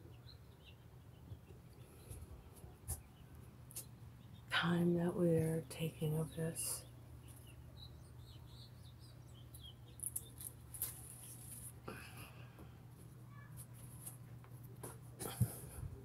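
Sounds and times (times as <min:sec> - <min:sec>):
steady low hum: 0:00.0 - 0:16.0
rustling of plants: 0:09.9 - 0:15.8.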